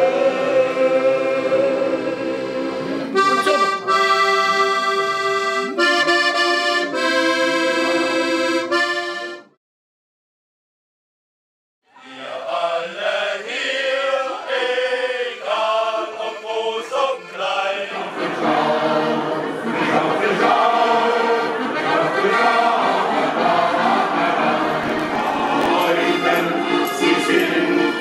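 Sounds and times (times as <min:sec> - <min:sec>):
men's choir singing: 0:00.0 - 0:04.2, 0:12.0 - 0:28.0
accordion: 0:00.0 - 0:09.6, 0:14.0 - 0:28.0.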